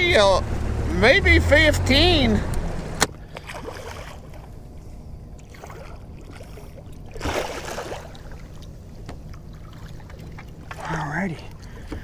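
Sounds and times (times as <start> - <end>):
steady low rumble: 0.0 - 12.0
water splashing: 3.2 - 4.6, 5.4 - 12.0
fish thrashing at surface: 5.5 - 8.5.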